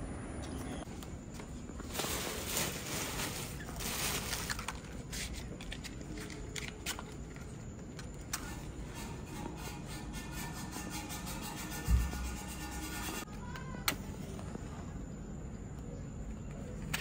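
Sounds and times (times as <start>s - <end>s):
paper and leaves rustling: 0.9s - 8.8s.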